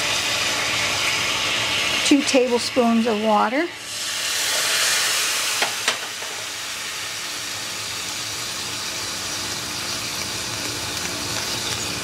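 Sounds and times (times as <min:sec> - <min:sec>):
liquid sizzling in hot skillet: 0:00.0 - 0:12.0.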